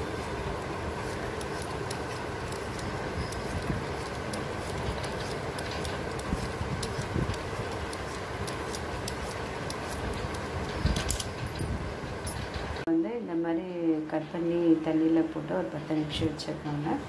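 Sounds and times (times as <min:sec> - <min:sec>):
peeler scraping potato: 0:00.0 - 0:11.2
steady background hum: 0:00.0 - 0:17.0.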